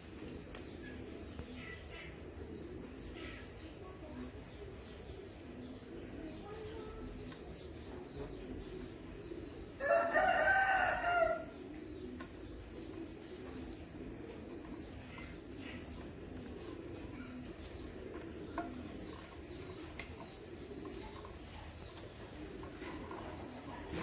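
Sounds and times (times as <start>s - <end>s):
low steady background: 0.0s - 24.0s
rooster crowing: 9.8s - 11.6s.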